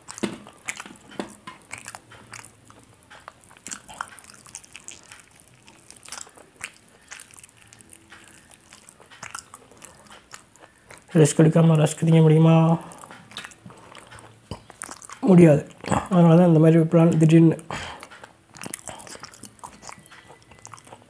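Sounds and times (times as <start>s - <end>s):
wet mouth clicks: 0.0s - 11.2s, 12.8s - 16.2s, 17.9s - 21.0s
person chewing with crunches: 0.0s - 21.0s.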